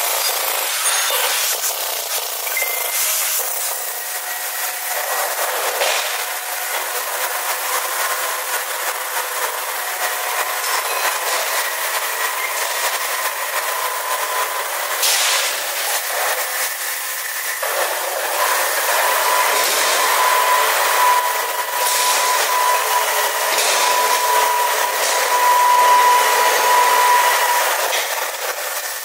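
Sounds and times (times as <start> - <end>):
factory machinery noise: 0.0 - 29.0
high whining tones: 18.3 - 28.4.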